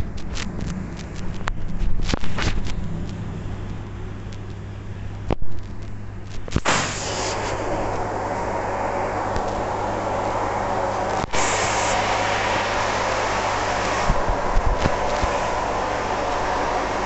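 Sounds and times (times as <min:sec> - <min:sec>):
pump humming: 0:06.5 - 0:17.0
water jets hissing: 0:06.6 - 0:17.0.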